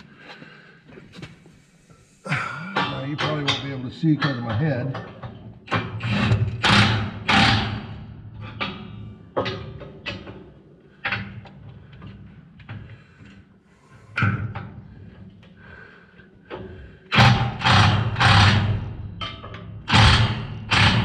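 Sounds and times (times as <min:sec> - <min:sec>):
impact wrench hammering: 0:17.1 - 0:21.0.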